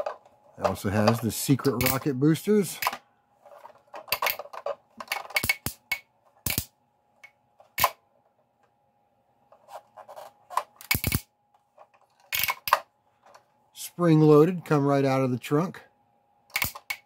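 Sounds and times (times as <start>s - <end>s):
plastic toy clicks and snaps: 16.5s - 17.0s.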